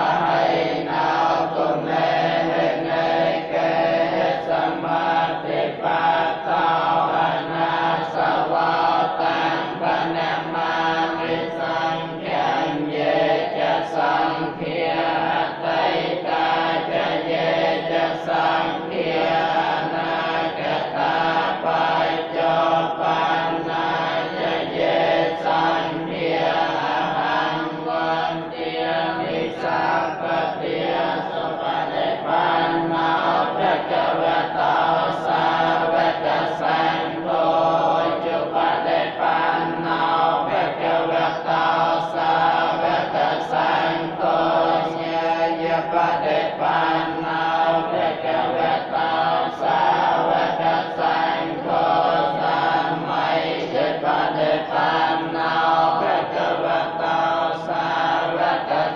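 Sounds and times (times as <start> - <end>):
monks chanting in unison: 0.0 - 58.9.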